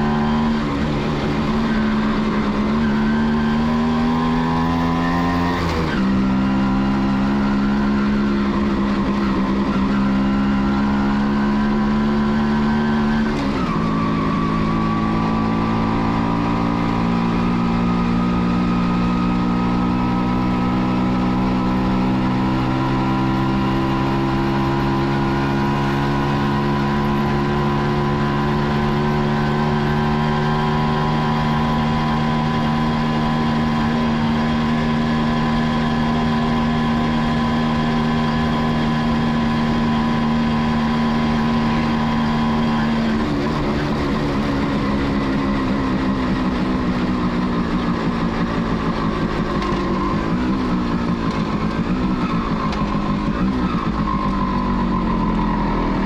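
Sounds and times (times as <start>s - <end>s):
two-stroke engine running: 26.3s - 56.0s.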